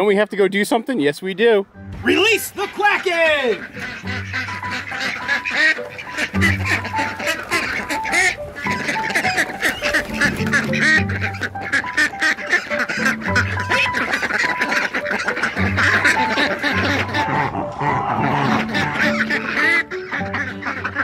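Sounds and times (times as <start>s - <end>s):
ducks quacking: 1.9s - 21.0s
background music with bass line: 3.7s - 5.4s, 6.3s - 14.1s, 15.0s - 21.0s.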